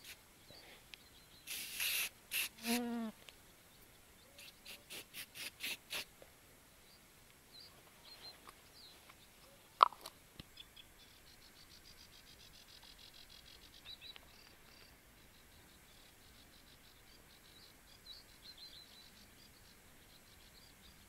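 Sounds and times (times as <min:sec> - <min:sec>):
small birds chirping: 0:00.0 - 0:06.1, 0:06.8 - 0:21.0.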